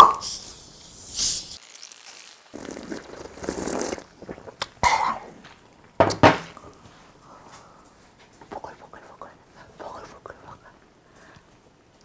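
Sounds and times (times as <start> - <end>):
cola fizzing over ice: 1.1 - 5.9.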